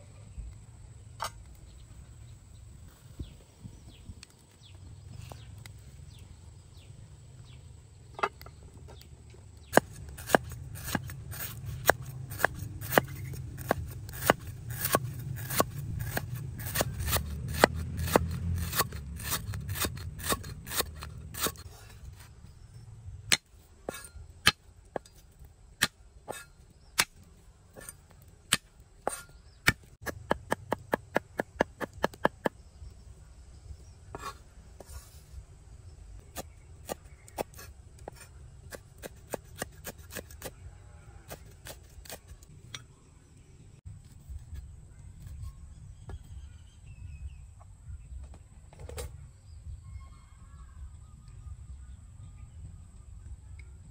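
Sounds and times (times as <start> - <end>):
cleaver chopping on wooden block: 9.7 - 21.6, 28.5 - 32.6.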